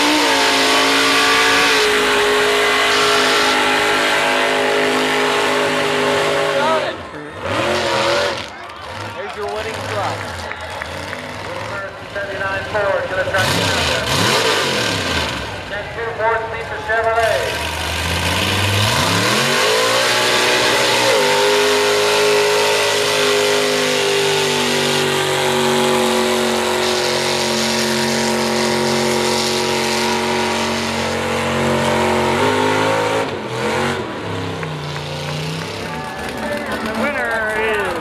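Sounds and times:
truck engine revving: 0.0s - 38.0s.

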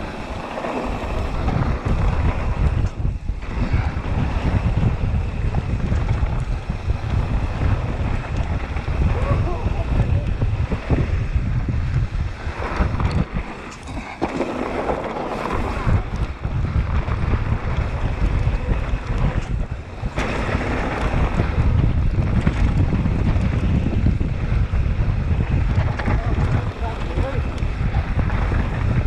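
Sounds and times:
bike knocks and rattles: 0.0s - 29.0s
bike tyres on dirt: 0.0s - 29.0s
wind rumbling on microphone: 0.0s - 29.0s.

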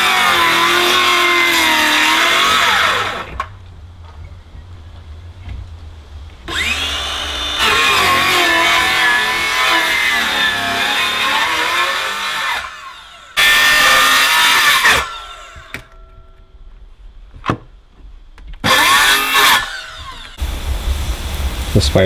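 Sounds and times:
circular saw cutting wood: 0.0s - 3.5s, 6.5s - 15.9s, 18.6s - 20.4s.

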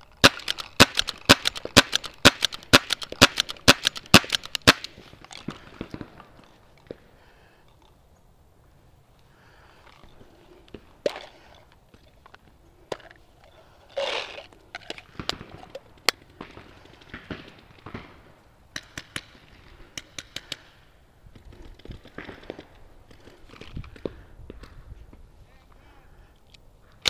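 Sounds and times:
paintball markers firing: 0.1s - 6.4s, 18.7s - 20.8s.

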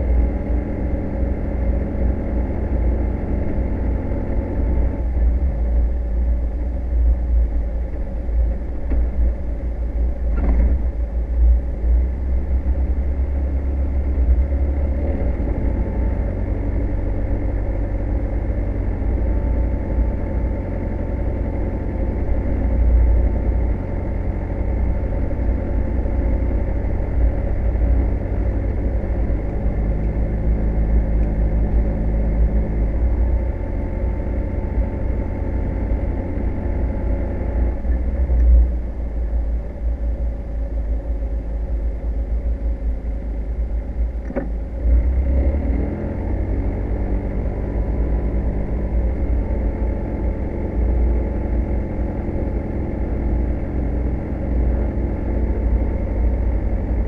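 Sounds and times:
car engine humming: 0.0s - 57.0s
road and body rumble: 0.0s - 57.0s.

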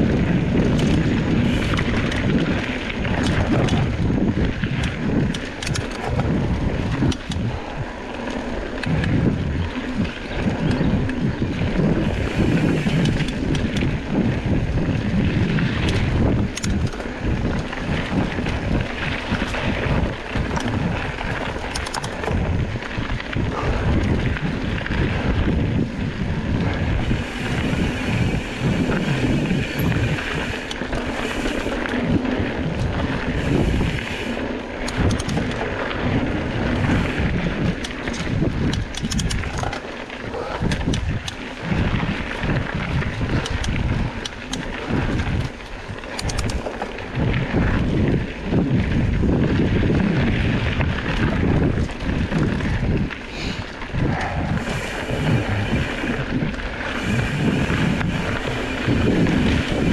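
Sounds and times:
bike tyres rolling over dirt: 0.0s - 59.9s
wind buffeting microphone: 0.0s - 59.9s.

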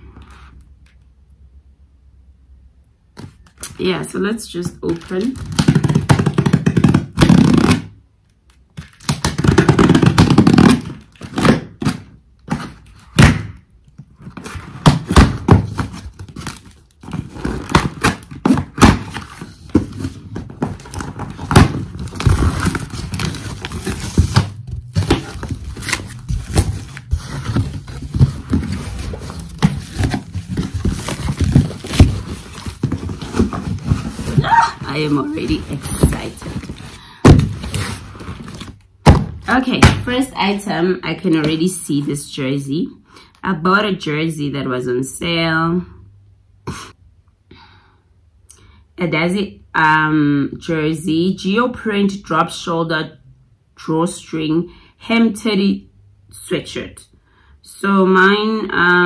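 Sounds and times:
cardboard box knocking and thudding: 14.3s - 40.1s.

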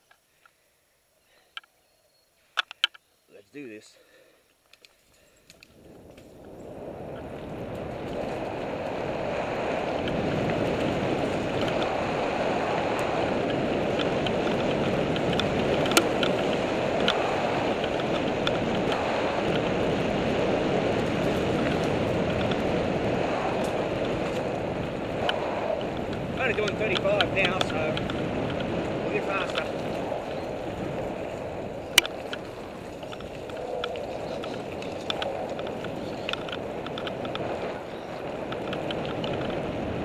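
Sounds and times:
bike tyres rumbling on dirt: 5.2s - 40.0s
wind rushing over microphone: 5.6s - 40.0s
bike clicks and knocks over bumps: 9.7s - 40.0s.

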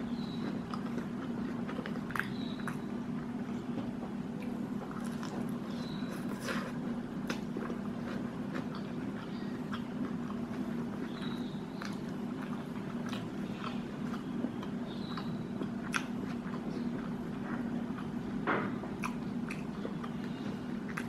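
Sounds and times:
steady low hum: 0.0s - 21.0s
person chewing and biting: 3.7s - 11.2s, 11.8s - 18.2s, 19.0s - 21.0s.

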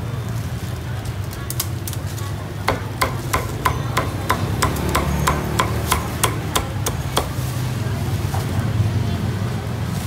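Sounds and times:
cleaver chopping on wooden board: 2.7s - 7.4s.

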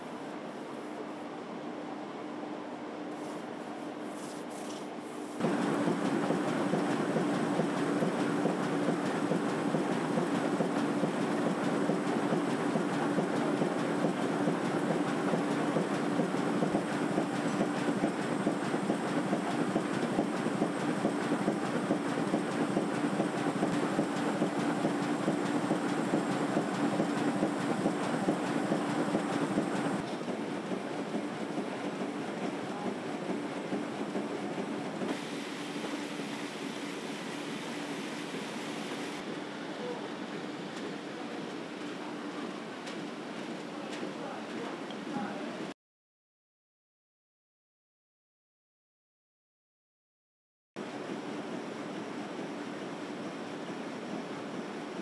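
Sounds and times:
short brushing sounds: 3.1s - 5.4s
printing press clatter: 5.4s - 36.0s.

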